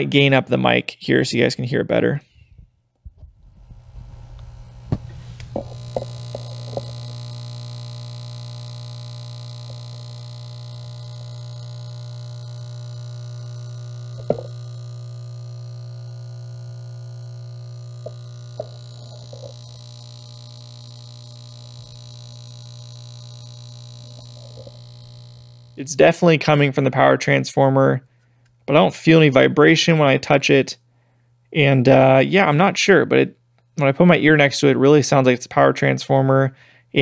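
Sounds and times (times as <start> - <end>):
microphone handling knocks: 3.0 - 6.9, 14.2 - 14.6
transformer humming and buzzing: 3.1 - 26.6.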